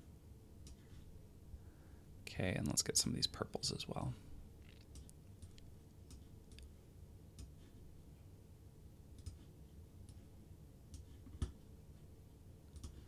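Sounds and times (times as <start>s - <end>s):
low room hum: 0.0s - 13.0s
computer mouse clicks: 4.7s - 6.7s, 7.4s - 7.6s, 9.2s - 9.4s, 12.7s - 13.0s.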